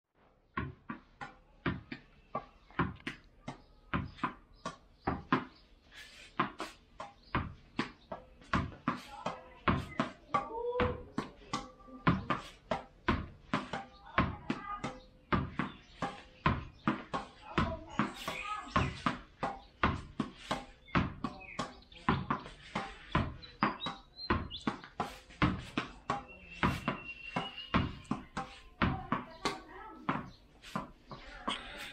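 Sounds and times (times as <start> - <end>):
ball bouncing on tiled floor: 0.2 - 31.9
racket striking tennis ball: 0.5 - 31.9
ball hitting wall: 15.3 - 31.9.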